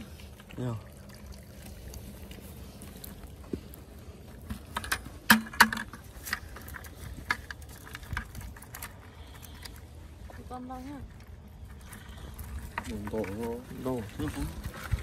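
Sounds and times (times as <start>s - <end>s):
crawfish rattling in plastic bucket: 0.0s - 15.0s.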